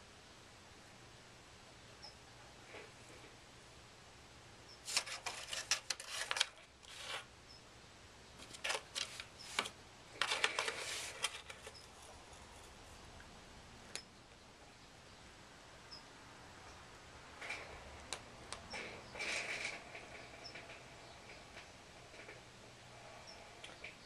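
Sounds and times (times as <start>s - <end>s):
cat scratching cardboard box: 4.8s - 7.3s, 8.4s - 12.8s.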